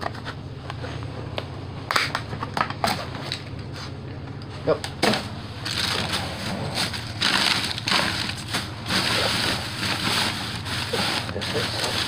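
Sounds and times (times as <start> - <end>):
low hum: 0.0 - 12.0
plastic bags rustling and crinkling: 5.0 - 12.0.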